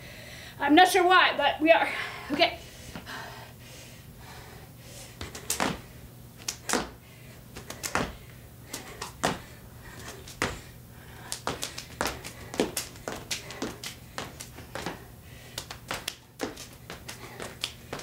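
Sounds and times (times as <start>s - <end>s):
feet landing on wooden floor: 8.8s - 10.7s
hands slapping thighs and chest: 11.2s - 18.0s.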